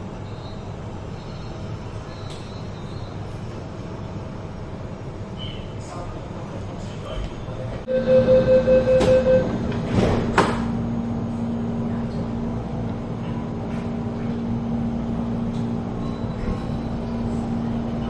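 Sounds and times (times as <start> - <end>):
steady train equipment hum: 0.0 - 18.0
rapid warning beeping: 7.9 - 9.6.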